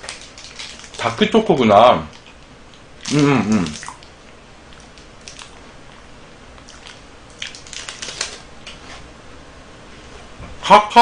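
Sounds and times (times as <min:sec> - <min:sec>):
wrapper crinkling: 0:00.0 - 0:01.2, 0:06.8 - 0:08.5.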